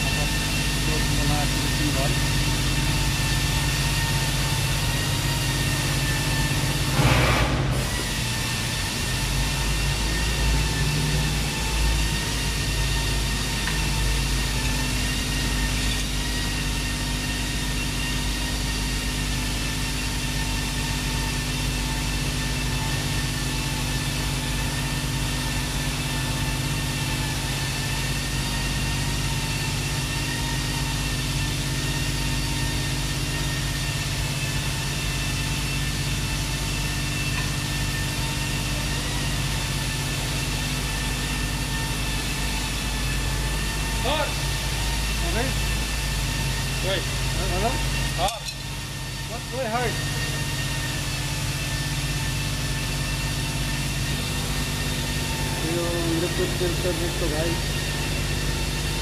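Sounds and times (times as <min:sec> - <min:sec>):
machinery humming: 0:00.0 - 0:59.0
short loud burst of noise: 0:06.9 - 0:08.0.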